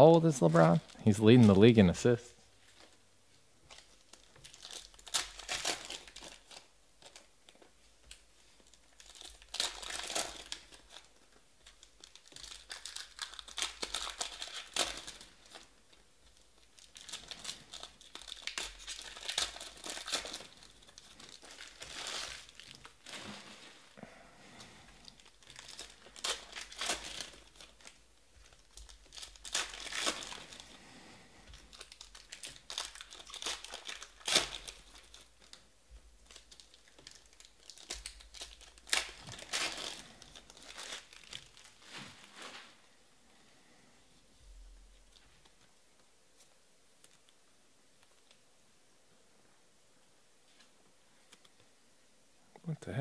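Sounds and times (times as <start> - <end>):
trading cards crinkling and rustling: 0.2 - 3.0, 3.6 - 42.8.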